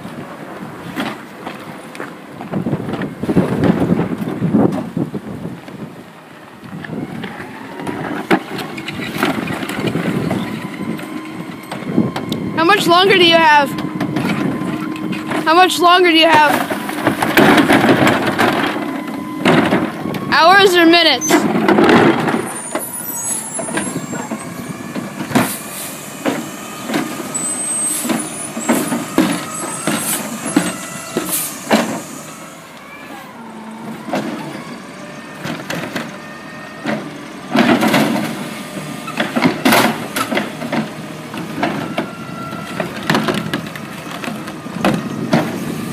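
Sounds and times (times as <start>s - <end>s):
arm clanking on plastic carts: 12.9s - 20.3s, 21.2s - 22.9s
whining hydraulic pump: 22.4s - 37.5s.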